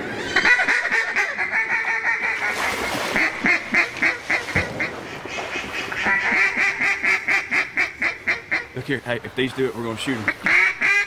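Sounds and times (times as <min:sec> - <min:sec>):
duck quacking: 0:03.2 - 0:08.8, 0:10.2 - 0:11.0.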